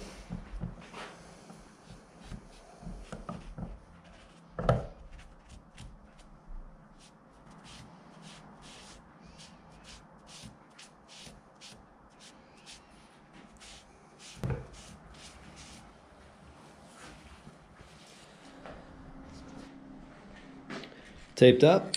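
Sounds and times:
brush swishing on wood: 0.0s - 4.4s, 6.9s - 15.9s
thump: 14.4s - 14.7s.

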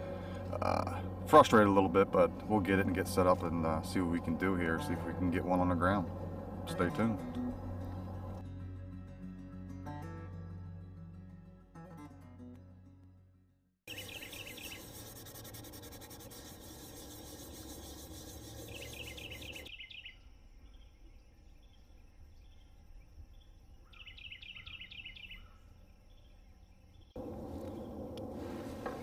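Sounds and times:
low wind rumble: 0.0s - 8.4s, 27.2s - 29.0s
songbird trilling: 13.9s - 15.0s, 17.7s - 20.9s, 23.8s - 26.3s.

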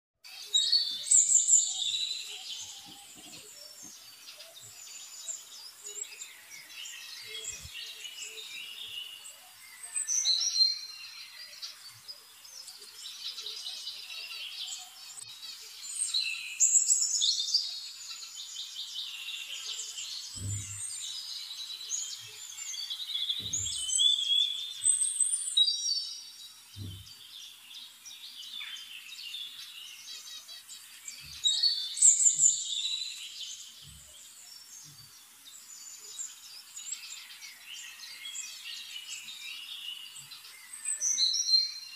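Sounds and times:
birds chirping and singing: 0.2s - 41.9s
soft low thumps: 20.4s - 20.9s, 26.8s - 27.2s.

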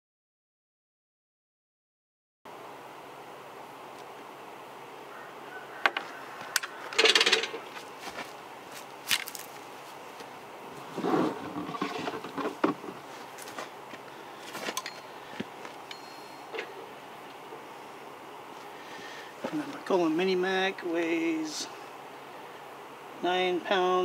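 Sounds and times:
scraping and rustling: 6.0s - 15.8s
rattling scrape: 6.6s - 7.8s, 10.8s - 13.0s.

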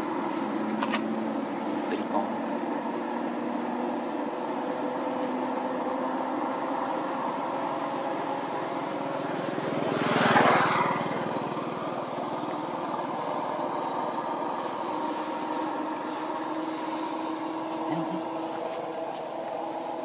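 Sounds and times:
steady background hum: 0.0s - 20.0s
motor vehicle passing: 8.3s - 13.4s.

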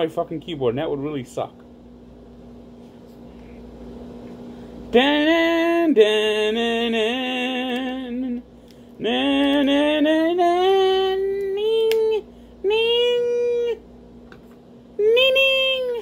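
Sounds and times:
man singing wordless tune: 4.9s - 13.8s.

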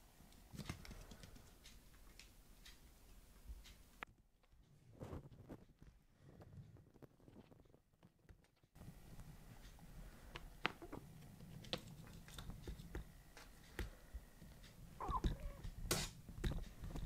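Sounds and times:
kitten paws tapping on wood: 10.3s - 17.0s.

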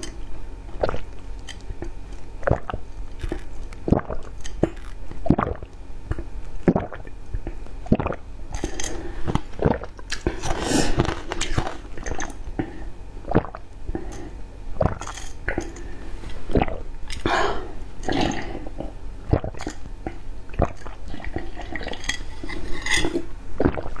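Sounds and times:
wet mouth sounds: 0.8s - 1.1s, 2.4s - 7.2s, 7.8s - 8.7s, 9.3s - 12.7s, 13.3s - 14.1s, 14.8s - 15.8s, 16.5s - 22.0s, 23.6s - 24.0s.

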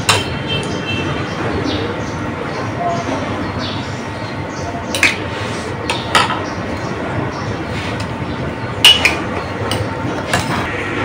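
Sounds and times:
spoons clinking on plates: 8.8s - 10.7s.

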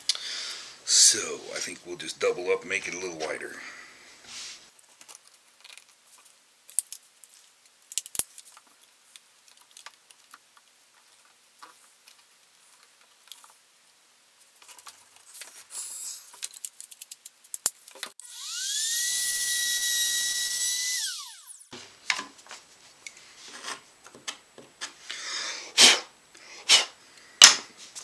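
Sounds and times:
router motor whine spinning up: 18.2s - 21.7s.

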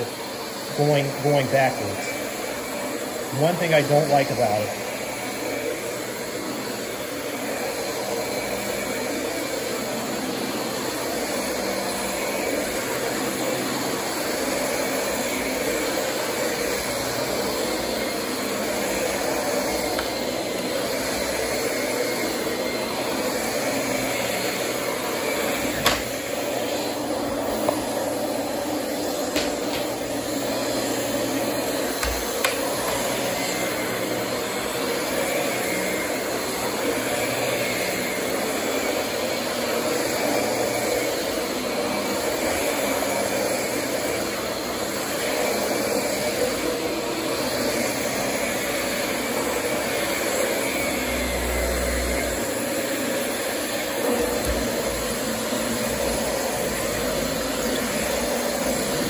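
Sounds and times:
vacuum cleaner running: 0.0s - 59.0s.

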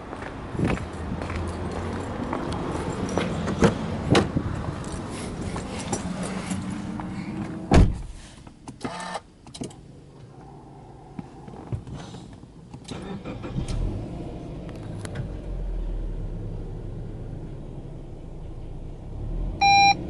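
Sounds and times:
car door shutting: 7.4s - 8.3s.

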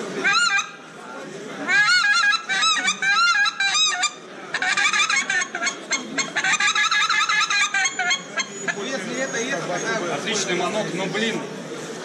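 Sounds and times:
goose call honks and clucks: 0.2s - 0.8s, 1.6s - 8.9s.

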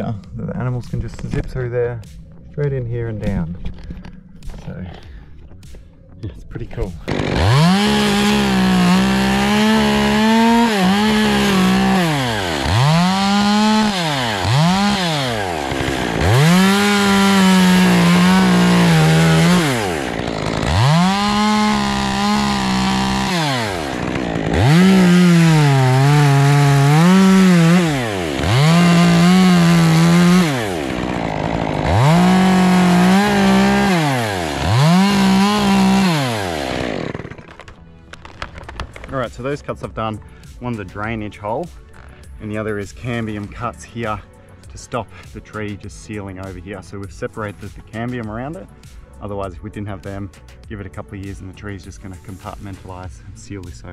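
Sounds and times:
chainsaw revving: 7.0s - 39.1s.

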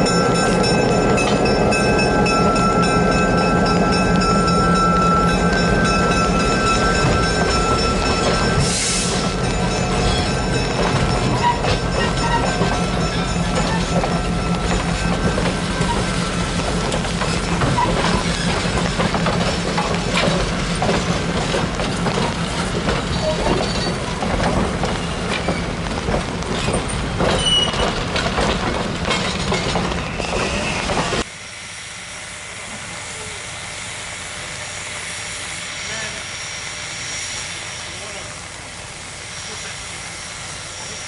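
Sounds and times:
high wheel squeals: 0.0s - 20.4s, 22.6s - 24.2s, 26.5s - 28.2s, 29.1s - 31.2s
train wheels clicking over rail joints: 0.0s - 31.3s.

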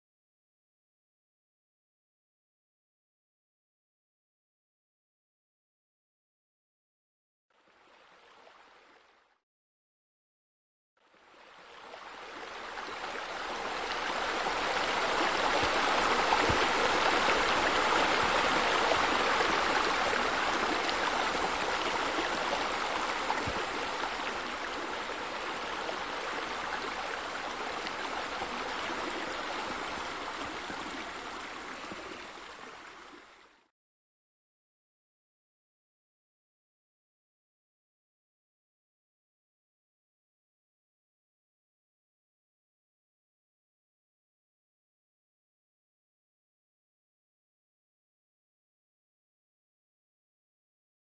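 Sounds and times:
running water rushing: 11.2s - 33.7s.

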